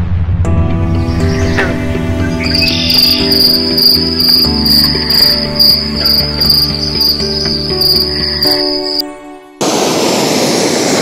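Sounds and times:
music playing: 0.5 - 9.7
insect trilling: 2.4 - 9.0.

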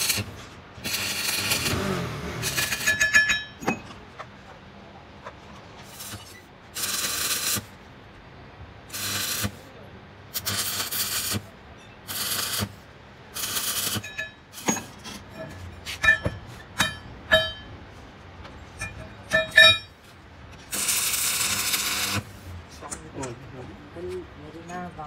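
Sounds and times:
welding arc crackling and hissing: 0.0 - 3.1, 5.8 - 7.8, 8.9 - 9.7, 10.3 - 14.8, 20.7 - 22.6.

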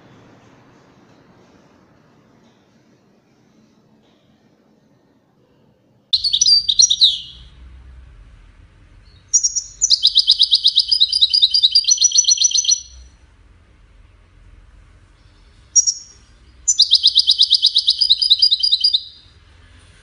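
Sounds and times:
goldfinch singing: 6.2 - 7.5, 9.2 - 13.0, 15.8 - 19.2.

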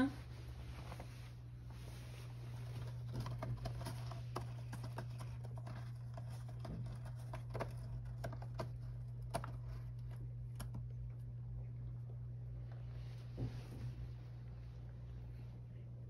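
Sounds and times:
steady low hum: 0.0 - 16.0
cat claws scratching cardboard: 2.5 - 11.0.

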